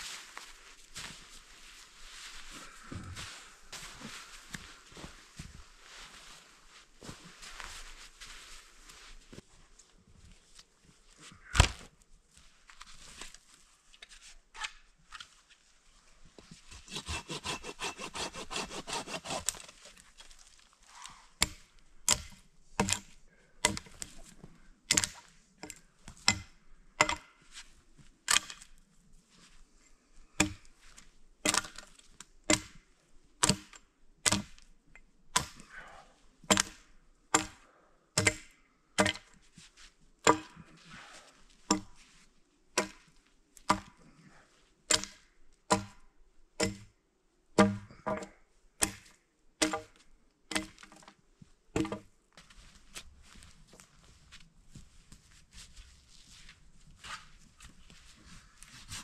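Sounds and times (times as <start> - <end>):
hand sawing wood: 16.7 - 19.8
chopping strikes on wood: 21.4 - 23.0, 30.4 - 30.6, 31.4 - 31.8, 32.5 - 32.8, 33.4 - 34.5, 36.5 - 36.8, 37.4 - 37.6, 38.2 - 39.3, 40.2 - 40.6, 42.8 - 43.0, 43.7 - 44.0, 44.9 - 46.0, 46.6 - 46.9, 47.6 - 51.0, 51.8 - 52.1.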